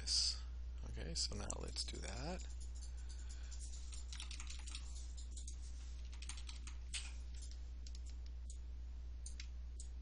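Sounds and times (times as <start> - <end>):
low electrical hum: 0.0 - 10.0
computer keyboard typing: 1.4 - 8.6.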